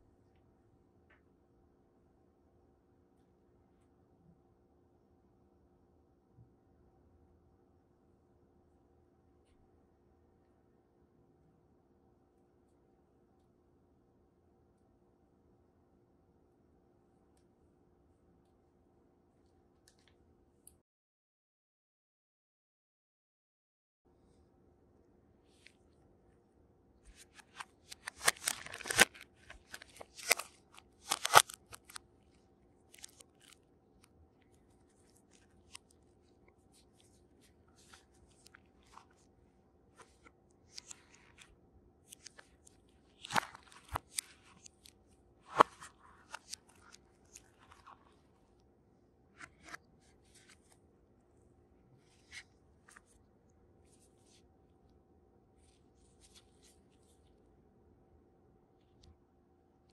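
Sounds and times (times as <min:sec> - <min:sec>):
cardboard packaging rustling: 0:27.1 - 0:32.0
plastic film crinkling: 0:27.1 - 0:32.0.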